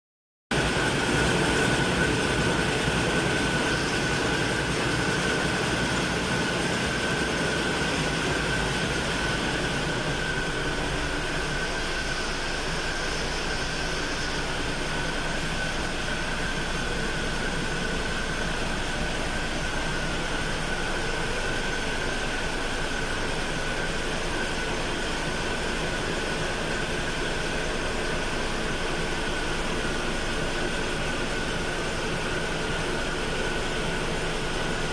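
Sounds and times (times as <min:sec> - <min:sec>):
constant high whine: 0:00.5 - 0:34.9.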